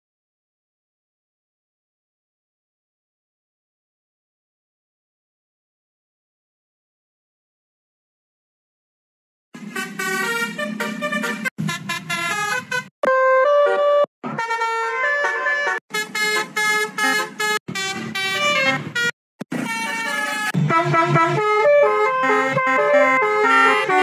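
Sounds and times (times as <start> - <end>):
multi-tone horn melody: 9.6 - 24.0.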